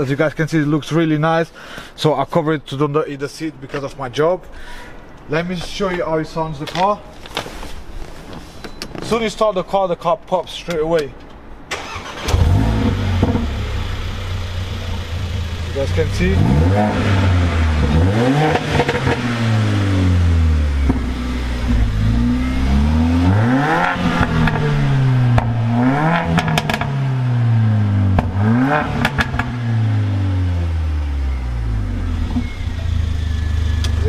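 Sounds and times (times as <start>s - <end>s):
car engine revving: 11.8s - 34.0s
exhaust pops and crackles: 13.1s - 13.6s, 17.8s - 19.4s, 20.8s - 22.1s, 23.8s - 26.9s, 28.1s - 29.6s.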